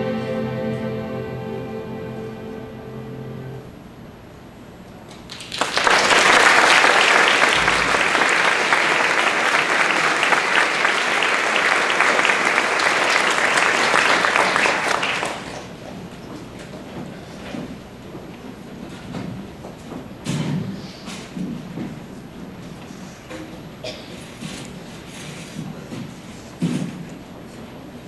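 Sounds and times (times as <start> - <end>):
music: 0.0 - 3.7
audience applauding: 5.1 - 15.8.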